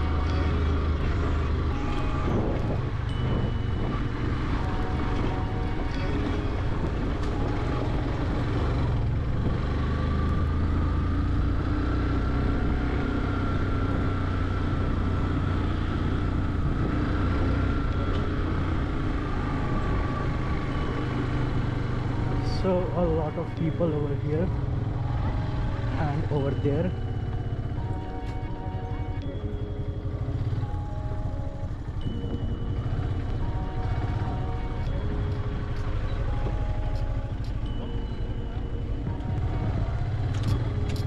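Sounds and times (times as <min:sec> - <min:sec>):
motorcycle engine running: 0:00.0 - 0:41.0
road and air noise: 0:00.0 - 0:41.0.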